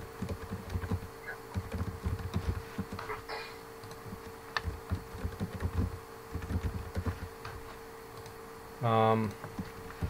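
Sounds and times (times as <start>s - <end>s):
faint steady hum: 0.0s - 10.0s
keyboard typing clicks: 0.2s - 3.1s, 3.8s - 7.3s, 8.2s - 8.4s.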